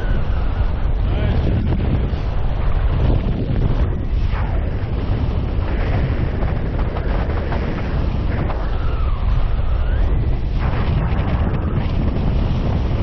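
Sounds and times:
faint whistle-like tones: 0:00.0 - 0:01.3, 0:08.6 - 0:10.5
heavy wind buffeting microphone: 0:00.0 - 0:13.0.

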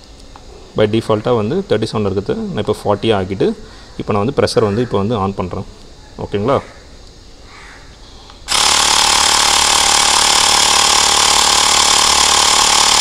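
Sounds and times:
electric air pump running: 0:08.5 - 0:13.0.

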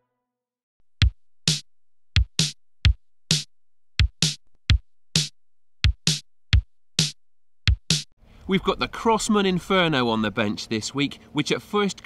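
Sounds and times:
drum machine kick thumps: 0:00.8 - 0:08.2
snare-like hits: 0:01.4 - 0:02.6, 0:03.3 - 0:04.4, 0:06.0 - 0:06.2, 0:07.0 - 0:08.1.

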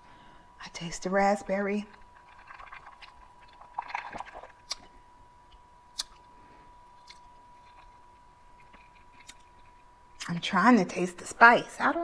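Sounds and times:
wet mouth sounds: 0:03.8 - 0:04.9, 0:05.9 - 0:06.3.

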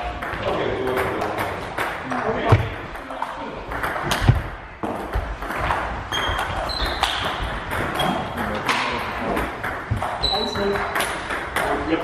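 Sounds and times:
sports hall background: 0:00.0 - 0:12.0
shoes squeaking on floor: 0:06.0 - 0:08.4, 0:09.9 - 0:10.8.

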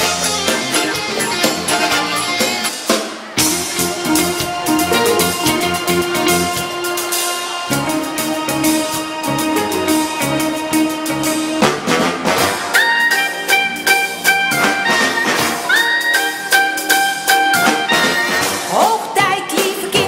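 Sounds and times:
brass-led show music: 0:00.0 - 0:18.8
drum beat: 0:04.6 - 0:06.7.

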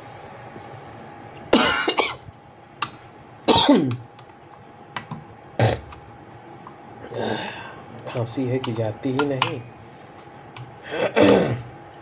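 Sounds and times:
man coughing: 0:01.6 - 0:02.2, 0:03.5 - 0:04.0, 0:10.8 - 0:11.7.

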